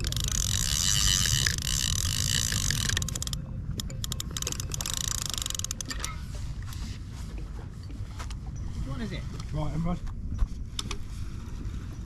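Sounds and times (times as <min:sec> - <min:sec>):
fishing reel ratcheting: 0:00.0 - 0:06.2.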